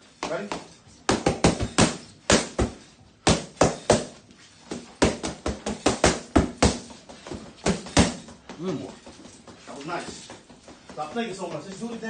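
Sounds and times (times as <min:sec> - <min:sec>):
boxing gloves smacking mitts: 0:00.1 - 0:11.9.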